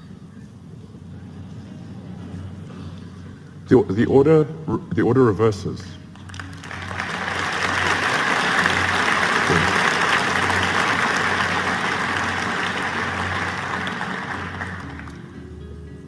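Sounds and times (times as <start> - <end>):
audience applauding: 6.2 - 15.4.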